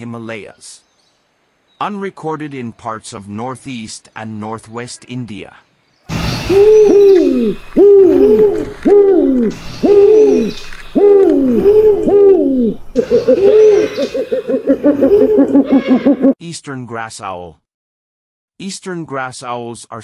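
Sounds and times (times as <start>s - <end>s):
owl hooting: 6.3s - 16.4s.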